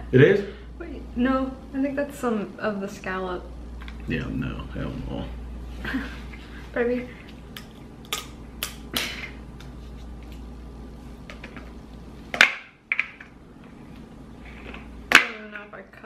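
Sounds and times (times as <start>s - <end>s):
scissors cracking crab shells: 7.6s - 9.7s.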